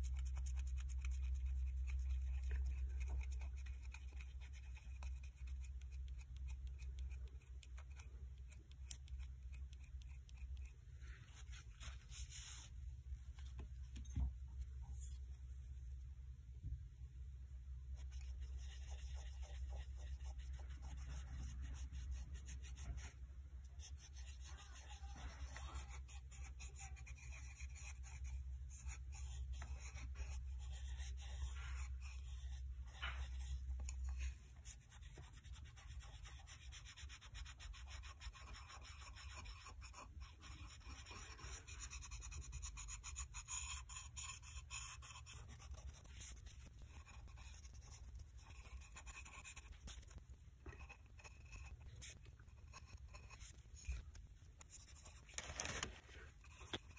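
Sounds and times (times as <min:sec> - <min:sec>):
low background hum: 0:00.0 - 0:56.9
tissue rubbing ceramic: 0:09.9 - 0:16.1.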